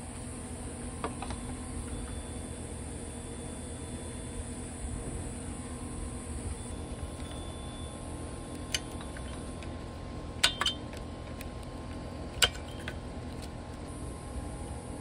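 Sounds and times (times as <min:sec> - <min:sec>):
steady background noise: 0:00.0 - 0:15.0
tool clicking on metal parts: 0:08.5 - 0:09.7, 0:10.4 - 0:11.7, 0:12.3 - 0:13.5.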